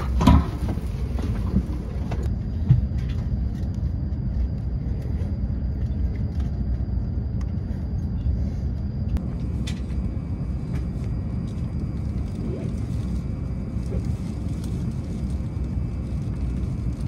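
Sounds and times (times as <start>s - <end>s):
train cabin rumble: 0.0s - 6.2s
faint high whine: 0.0s - 17.0s.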